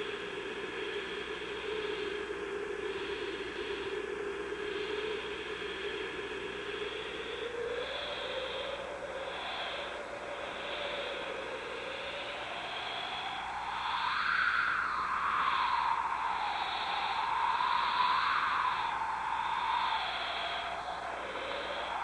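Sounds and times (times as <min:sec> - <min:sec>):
low droning tone: 0:00.0 - 0:14.0
constant hiss: 0:00.0 - 0:22.0
high droning tone: 0:00.0 - 0:22.0.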